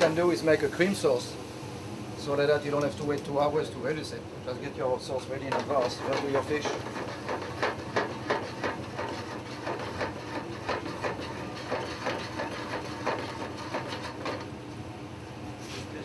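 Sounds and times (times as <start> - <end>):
pan scraping and knocking on grate: 5.5 - 14.5.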